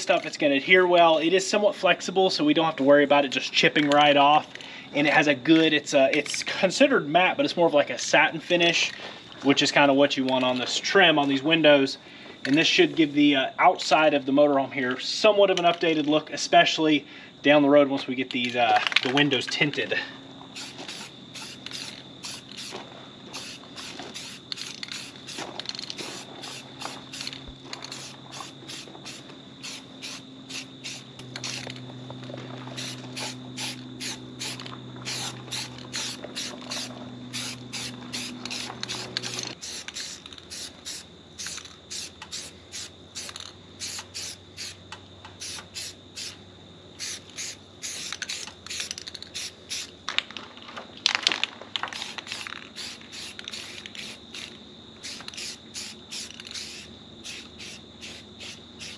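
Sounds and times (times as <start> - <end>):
aerosol spray can hissing: 20.6 - 31.7, 32.7 - 44.8, 45.4 - 46.4, 47.0 - 49.9, 52.0 - 58.9.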